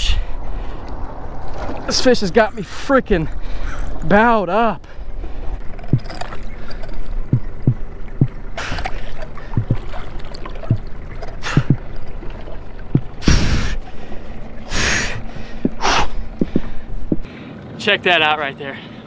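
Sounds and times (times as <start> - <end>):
person breathing heavily: 3.3 - 4.0, 11.4 - 11.8, 13.2 - 17.5
short low knocks: 7.2 - 8.6, 9.5 - 10.0, 10.6 - 12.0, 12.8 - 13.8, 15.1 - 17.3.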